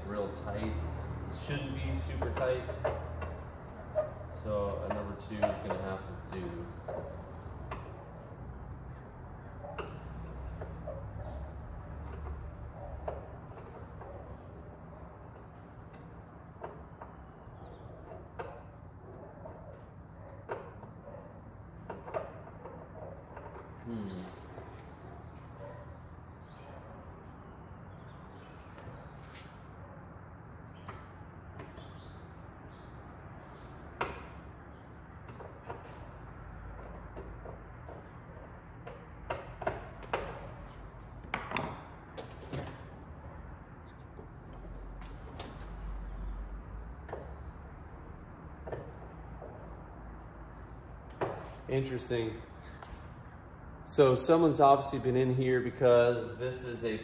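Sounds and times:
hand tools clicking and knocking: 1.9 - 8.0.

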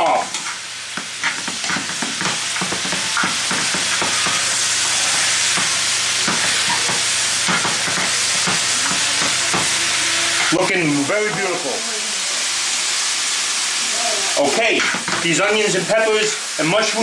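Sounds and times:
vegetables sizzling in a skillet: 0.0 - 17.0
tongs clicking and scraping pan: 0.3 - 10.6.

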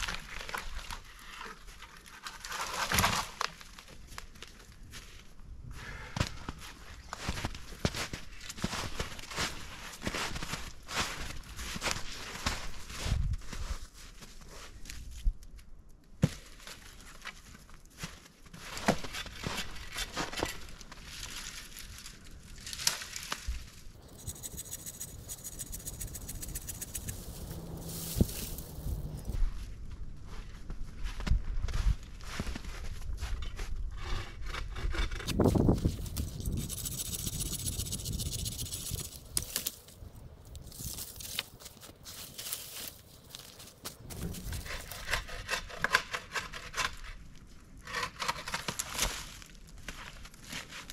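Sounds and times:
footsteps crunching through snow: 24.0 - 33.3, 40.6 - 44.6
dry sticks snapping: 38.9 - 39.9.

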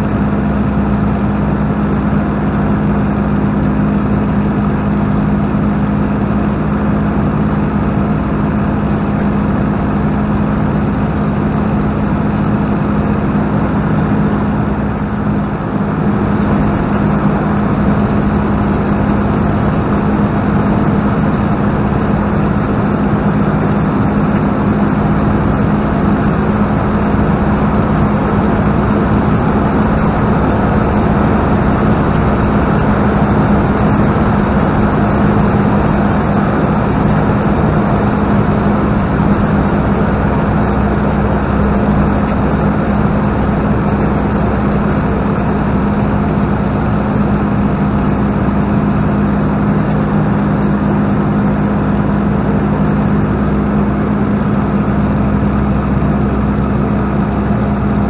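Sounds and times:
aircraft engine droning: 0.0 - 58.0.

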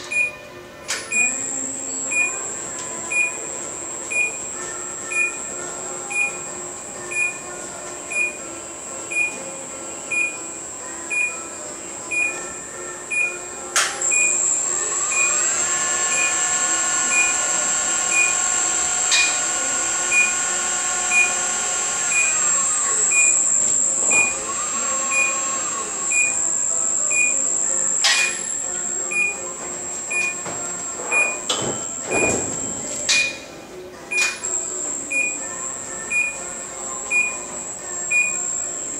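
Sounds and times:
warning beeper: 14.0 - 29.5
electric drive whining: 14.0 - 33.1.

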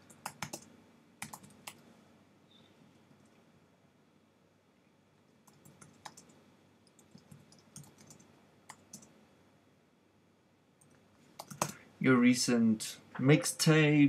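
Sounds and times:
computer keyboard typing: 0.0 - 1.8, 5.4 - 9.2, 10.8 - 11.8.

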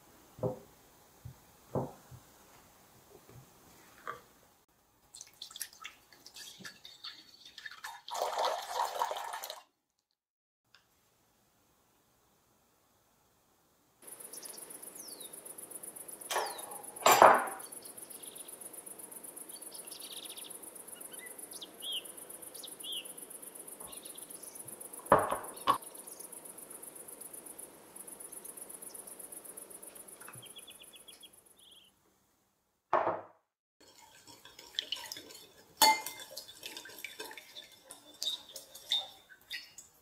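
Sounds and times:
insect chirring: 14.0 - 17.0, 17.6 - 31.9
bird chirps: 16.3 - 16.8, 19.5 - 23.2, 30.2 - 31.9
metal spoon clinking against jar: 35.8 - 36.5.

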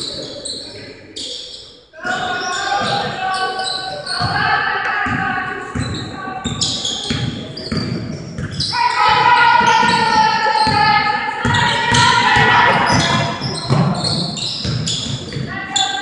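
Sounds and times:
voices in echoing hall: 0.0 - 16.0
basketball bouncing on court: 4.2 - 15.5.

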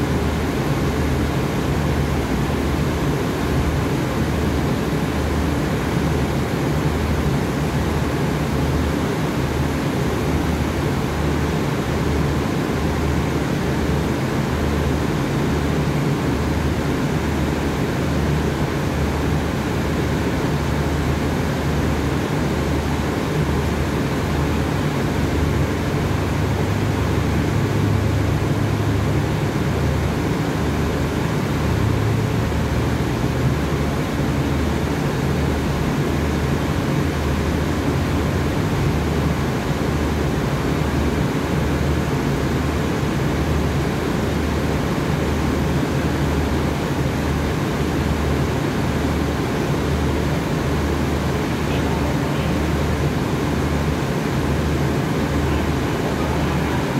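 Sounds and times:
diesel train engine humming: 0.0 - 56.9.

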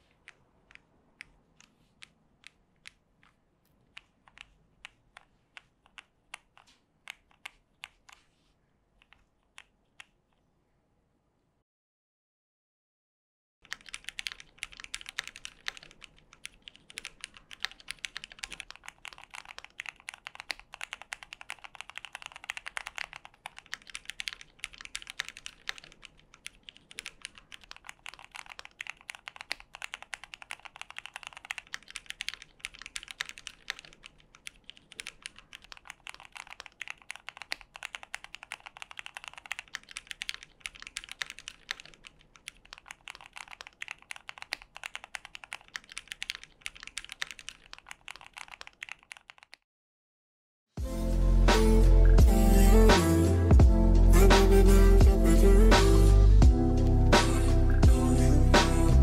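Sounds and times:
fast mechanical keyboard typing: 13.6 - 49.6.

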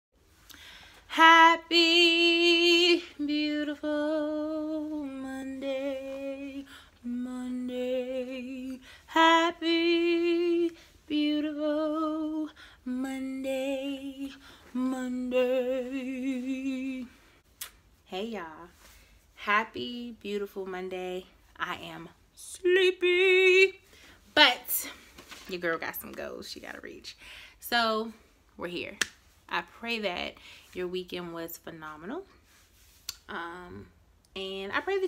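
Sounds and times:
singer breathing: 0.5 - 1.1
woman singing unaccompanied: 1.1 - 17.2, 19.4 - 23.8, 33.2 - 35.0.

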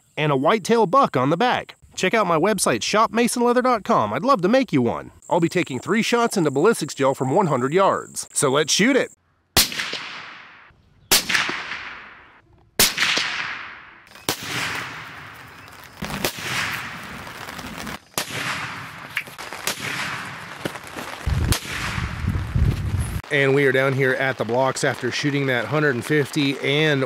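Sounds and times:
suppressed rifle shots with echo: 9.6 - 15.1.

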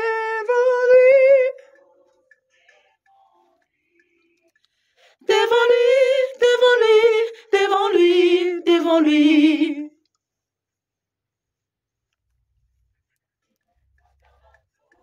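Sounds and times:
person singing unaccompanied: 0.0 - 4.5, 5.2 - 10.0.

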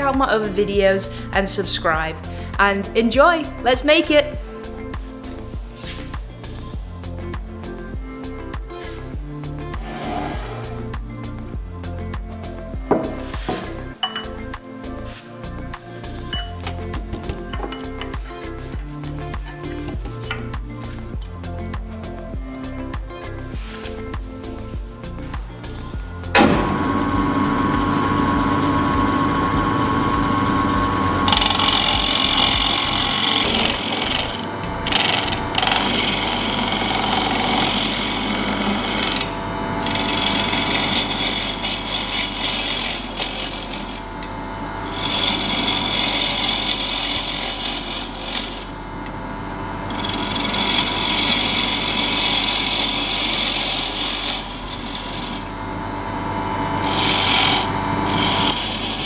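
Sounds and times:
wood lathe humming: 4.4 - 59.0
gouge scraping spinning wood: 8.8 - 11.5, 12.4 - 21.1, 22.8 - 48.8, 49.7 - 59.0.

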